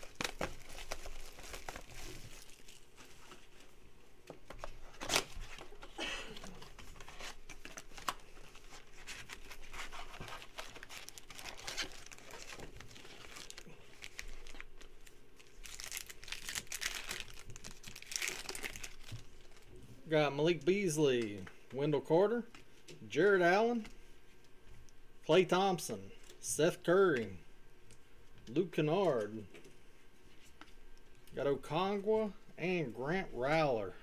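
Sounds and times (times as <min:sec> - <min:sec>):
foil pack ripping open: 0:00.0 - 0:02.9, 0:07.1 - 0:19.6
plastic wrap and cardboard tearing: 0:00.0 - 0:03.0, 0:06.5 - 0:19.7.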